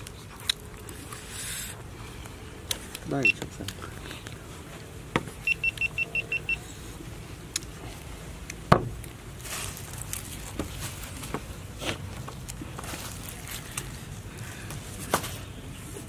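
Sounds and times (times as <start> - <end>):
high electronic beeps: 5.4 - 6.6.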